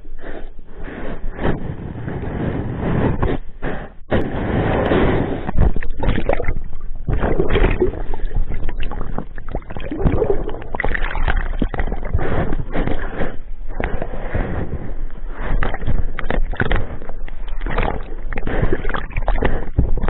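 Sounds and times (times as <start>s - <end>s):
water churning and sloshing: 4.2s - 20.0s.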